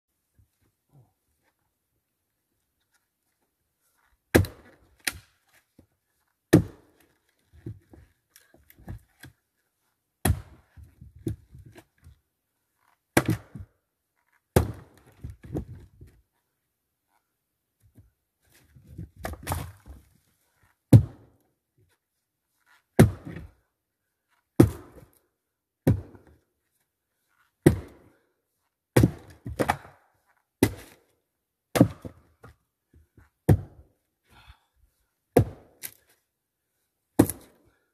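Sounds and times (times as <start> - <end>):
axe chopping into trunk: 4.3 - 5.2, 14.6 - 15.0, 29.0 - 29.9, 30.6 - 31.0, 31.7 - 32.2, 35.4 - 35.9, 37.2 - 37.6.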